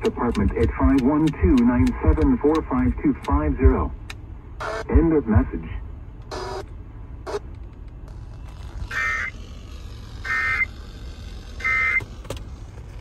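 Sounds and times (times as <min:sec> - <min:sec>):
buzzy data bursts: 0:08.6 - 0:12.0.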